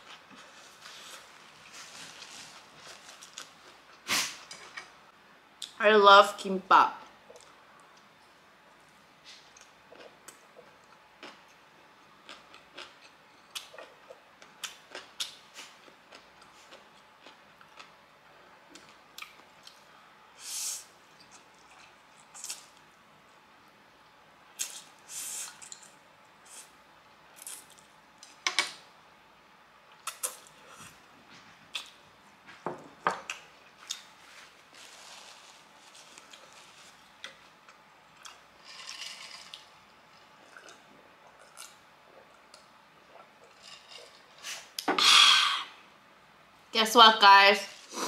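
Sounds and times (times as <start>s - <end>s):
person chewing noodles: 9.5s - 18.0s, 33.8s - 44.8s.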